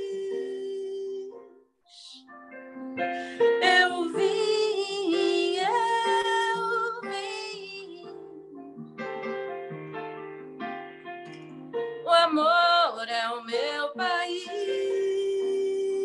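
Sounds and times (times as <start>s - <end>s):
woman singing wordless phrase: 3.6s - 8.2s, 12.1s - 16.0s.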